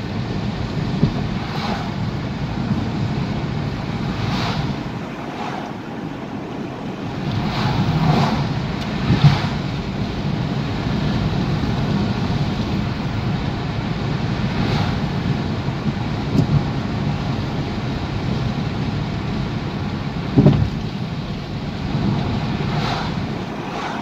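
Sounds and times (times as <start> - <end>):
tyre and engine rumble: 0.0 - 24.0
wind noise: 0.0 - 24.0.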